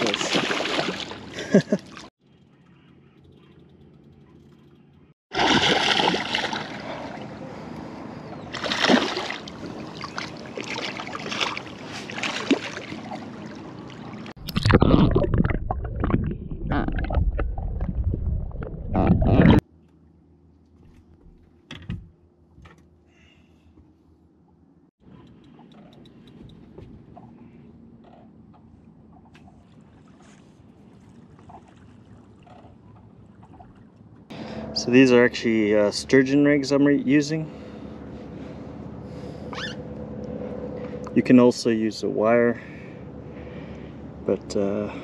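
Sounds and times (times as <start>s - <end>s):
water splashing and churning: 0.0s - 2.1s, 5.3s - 7.7s, 8.4s - 19.6s, 29.2s - 34.2s.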